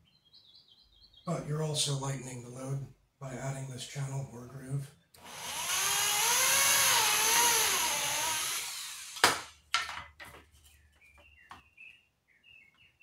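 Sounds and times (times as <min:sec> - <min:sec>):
electric drill boring through plywood: 0:05.2 - 0:09.5.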